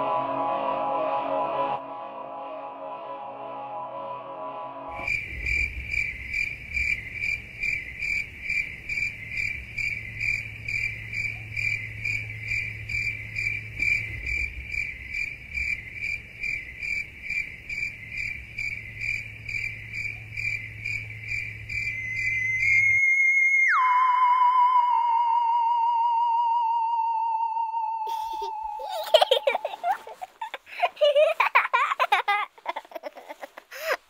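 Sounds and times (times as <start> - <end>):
faint low hum: 4.9 - 23.0, 24.6 - 34.0
cricket chirping: 4.9 - 31.8.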